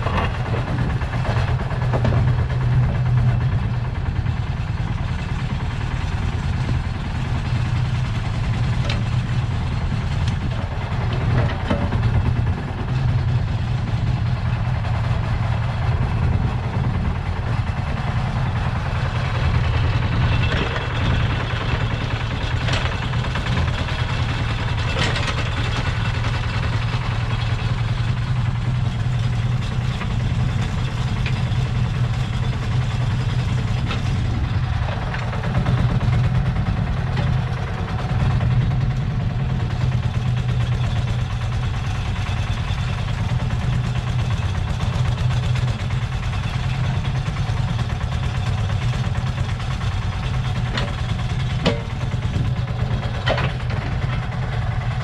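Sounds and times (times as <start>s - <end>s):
digger bucket clanks: 0.0s - 3.4s, 8.5s - 13.0s, 19.6s - 26.3s, 46.7s - 54.8s
diesel engine running: 0.0s - 55.0s.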